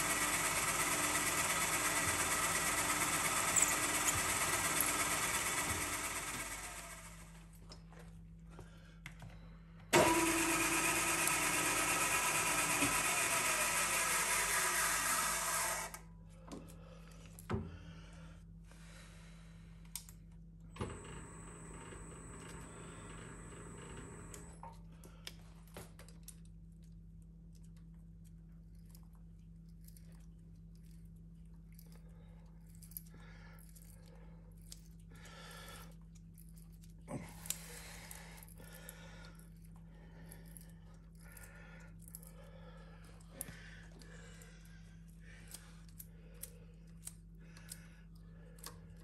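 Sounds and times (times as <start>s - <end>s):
milling machine drilling: 0.0s - 7.2s, 10.0s - 16.0s
steady low hum: 16.0s - 49.0s.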